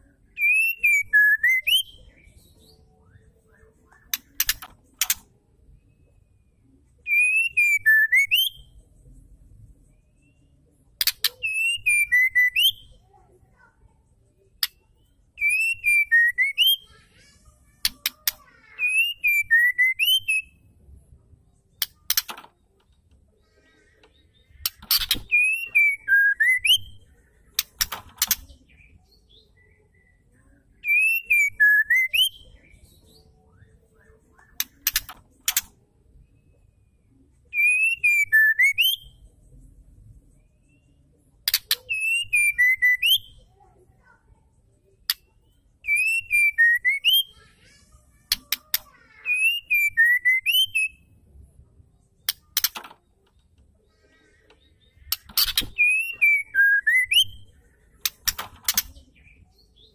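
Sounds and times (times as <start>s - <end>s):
sharp clicks: 4.1s - 5.3s, 27.6s - 28.5s, 34.6s - 35.8s, 58.0s - 59.0s
high scratchy bird twitter: 54.9s - 59.9s.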